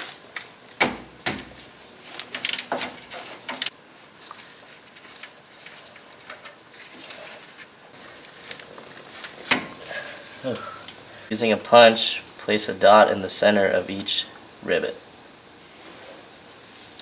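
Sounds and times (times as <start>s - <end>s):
light handling ticks: 1.6s - 11.3s.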